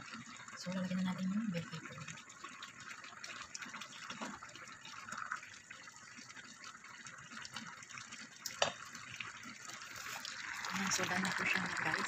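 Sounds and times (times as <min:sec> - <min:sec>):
sauce bubbling in pot: 0:00.0 - 0:12.0.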